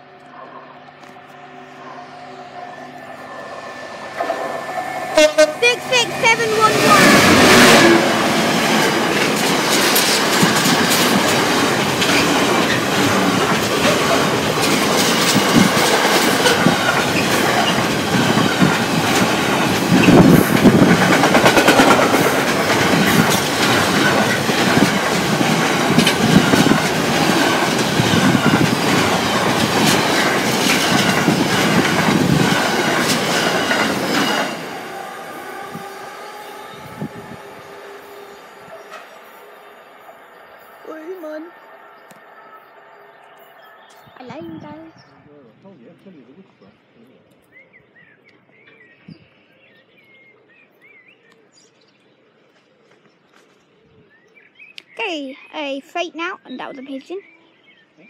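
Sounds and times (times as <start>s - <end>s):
freight train wagons rumbling: 0.0s - 47.0s
wheels clicking over rail joints: 8.5s - 34.7s.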